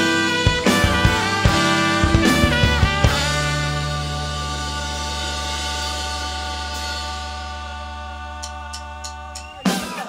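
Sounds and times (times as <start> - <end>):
drum kit hits: 0.0 - 7.5
band playing ringing chords: 0.0 - 8.4.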